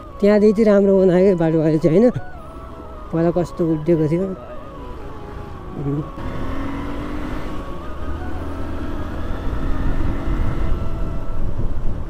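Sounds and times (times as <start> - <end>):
wind and road rumble: 0.0 - 12.0
motorcycle engine running: 4.5 - 12.0.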